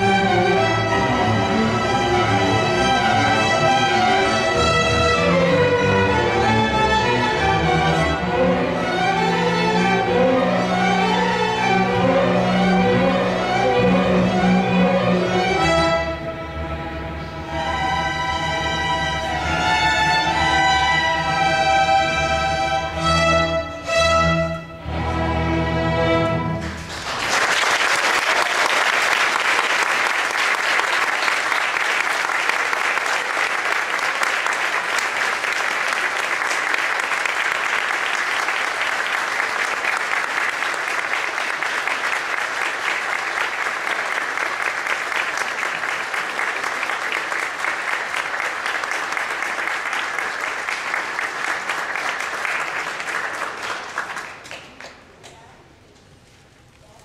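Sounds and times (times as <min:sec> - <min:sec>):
audience applauding: 0:26.6 - 0:55.4.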